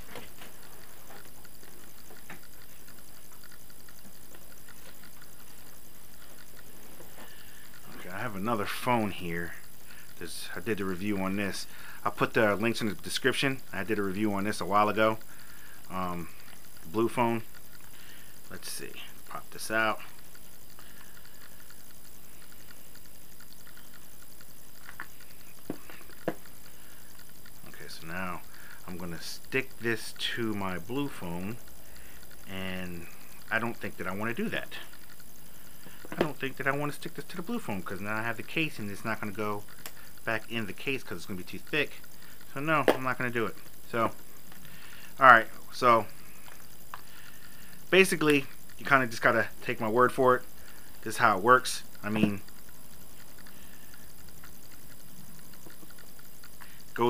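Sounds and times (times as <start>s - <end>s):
faint clicks and taps: 0.0s - 57.0s
steady background hiss: 0.0s - 57.0s
sharp plastic clicks: 38.4s - 45.2s.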